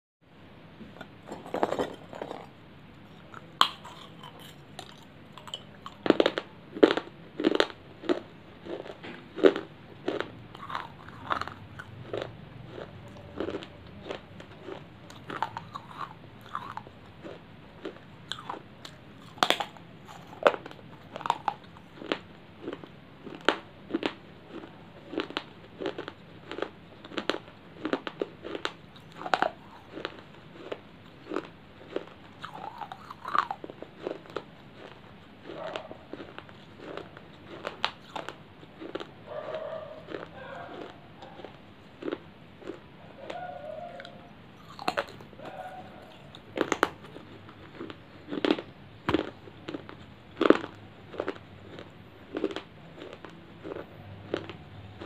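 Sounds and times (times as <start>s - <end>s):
soft chewing: 0.8s - 55.0s
crunching baked clay: 0.9s - 55.0s.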